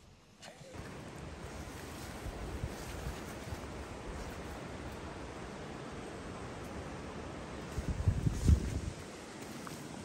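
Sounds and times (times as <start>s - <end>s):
wind buffeting microphone: 7.6s - 9.2s.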